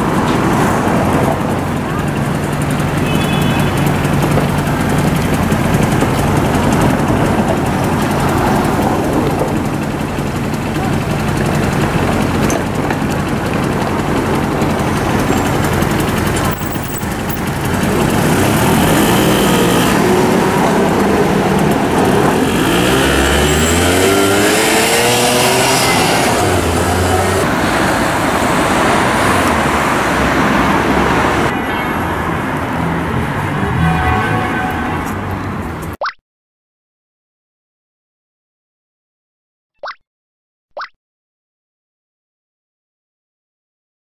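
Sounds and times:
engine revving: 0.0 - 31.5
city street traffic: 0.0 - 36.0.

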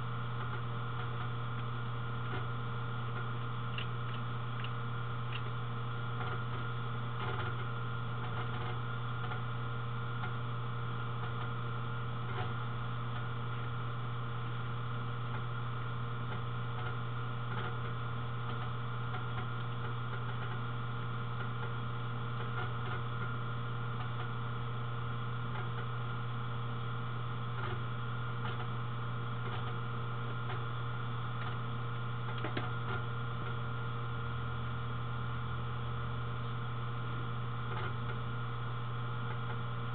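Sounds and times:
low electrical hum: 0.0 - 39.9
faint irregular clicks: 3.1 - 5.6.

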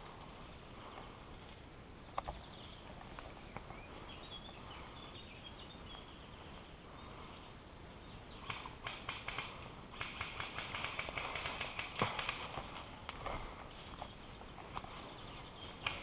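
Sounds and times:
bird chirping: 1.9 - 10.3, 13.8 - 16.0
sharp clicks: 8.4 - 13.3, 15.8 - 16.0.

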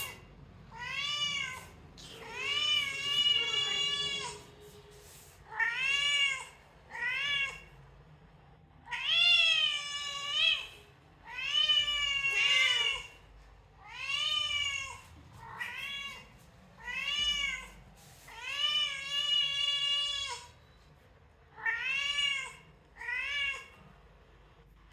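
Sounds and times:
recorded cat meows through speakers: 0.0 - 4.5, 5.4 - 7.8, 8.8 - 13.2, 13.8 - 20.5, 21.5 - 23.8.

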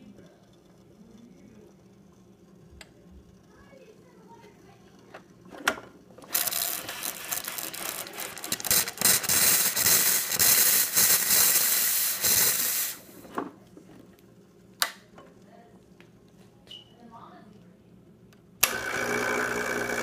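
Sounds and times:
espresso machine steam wand hissing: 6.3 - 13.2.

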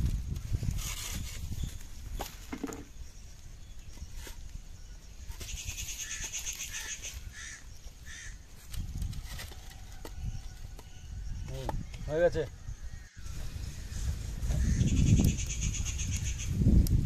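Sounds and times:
crow cawing: 6.0 - 8.4, 14.5 - 15.3.

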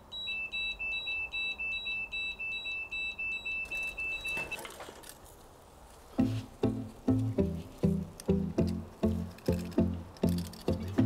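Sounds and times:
electronic alarm beeping: 0.1 - 4.6.

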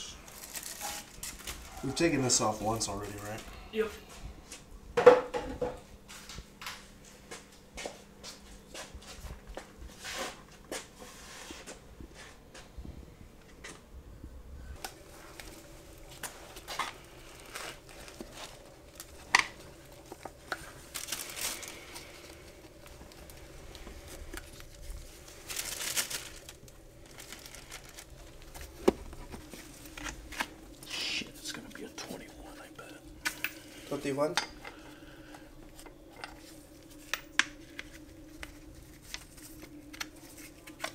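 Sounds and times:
rustling: 14.7 - 40.9.

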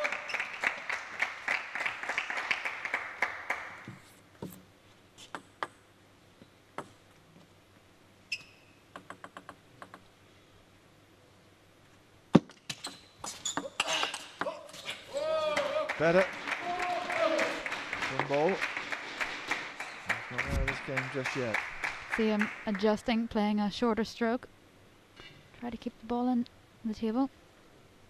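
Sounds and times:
applause: 0.0 - 3.9, 15.4 - 23.1.

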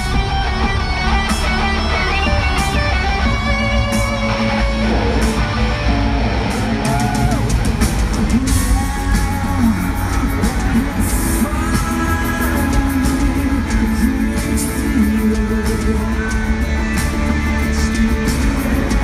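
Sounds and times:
drum kit: 0.0 - 19.0
electric guitar: 0.0 - 19.0
live rock band playing: 0.0 - 19.0
person singing: 6.4 - 19.0.

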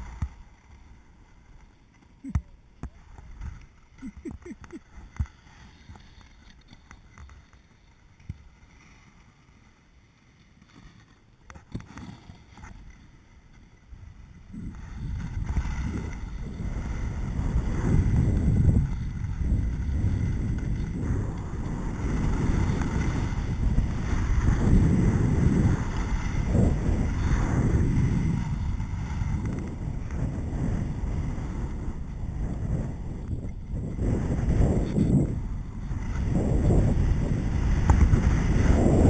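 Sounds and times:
wind rushing over microphone: 0.0 - 0.4, 13.9 - 39.0
skis hissing over snow: 2.9 - 39.0.

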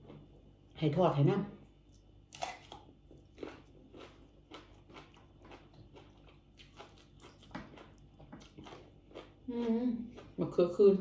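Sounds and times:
chewing food: 1.8 - 10.6.

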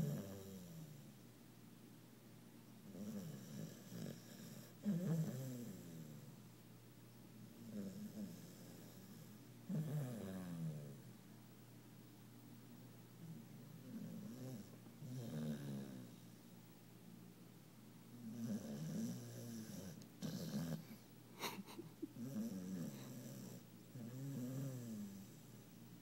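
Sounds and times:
puppy snoring: 0.0 - 1.1, 2.8 - 6.3, 7.6 - 11.1, 13.2 - 16.3, 18.1 - 25.5.

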